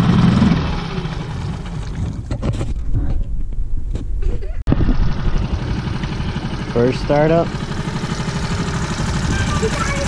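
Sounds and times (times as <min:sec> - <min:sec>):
outboard motor idling: 0:00.0 - 0:02.5, 0:04.7 - 0:10.0.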